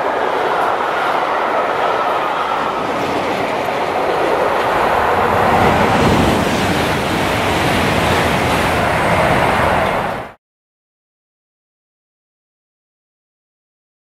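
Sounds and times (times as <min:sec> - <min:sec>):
train rushing past: 0:00.0 - 0:10.4.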